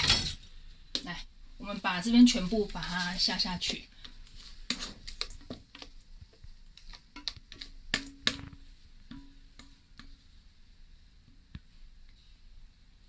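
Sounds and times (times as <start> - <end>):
spatula knocking on metal bowl: 7.9 - 10.1.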